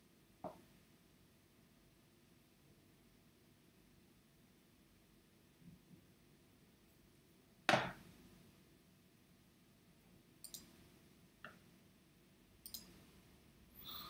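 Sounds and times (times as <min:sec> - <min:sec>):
computer mouse clicks: 0:10.4 - 0:10.8, 0:12.6 - 0:13.0.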